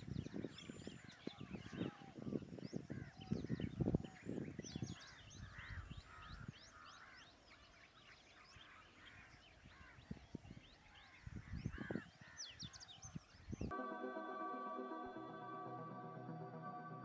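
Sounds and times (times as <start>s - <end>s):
birds chirping: 0.0s - 14.0s
harsh caw-like bird calls: 5.0s - 7.4s, 10.9s - 12.8s.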